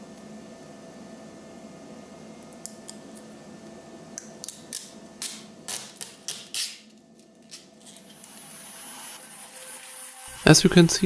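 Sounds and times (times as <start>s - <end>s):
film peeling with crackling rips: 4.4s - 8.4s.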